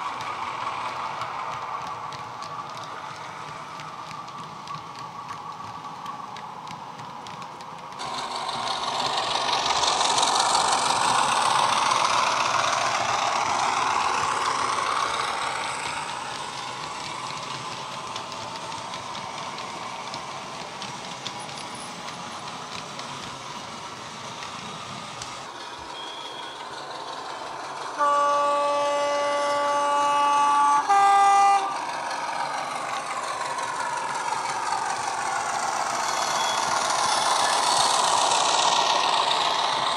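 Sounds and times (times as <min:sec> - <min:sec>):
wheel and rail noise: 0:00.0 - 0:39.9
model train horn: 0:28.0 - 0:31.8.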